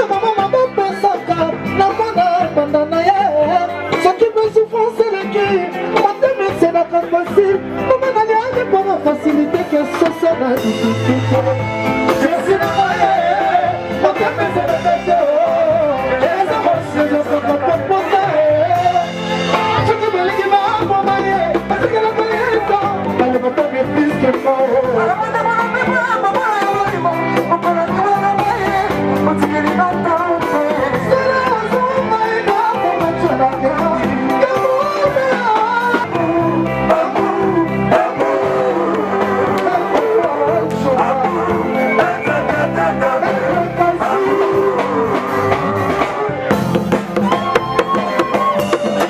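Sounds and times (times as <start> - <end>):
singing over guitar and drums: 0.0 - 49.0.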